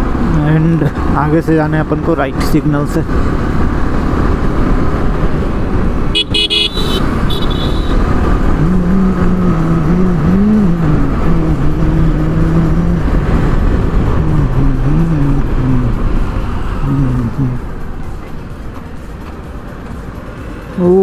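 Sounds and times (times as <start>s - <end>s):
motorcycle engine: 0.0s - 20.4s
vehicle horn: 6.1s - 8.1s
wind rush: 7.9s - 18.0s.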